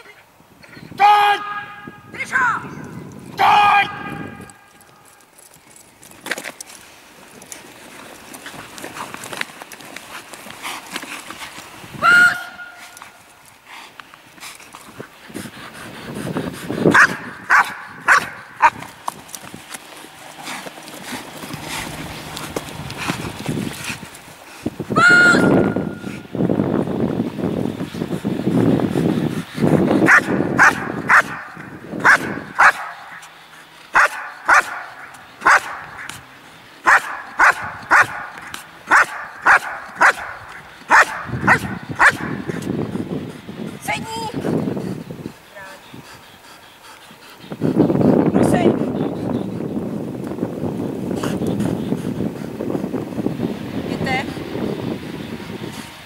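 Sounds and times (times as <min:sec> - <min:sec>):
dog barking: 0:17.0 - 0:18.8, 0:30.1 - 0:33.2, 0:34.0 - 0:36.0, 0:36.8 - 0:38.3, 0:38.9 - 0:42.4.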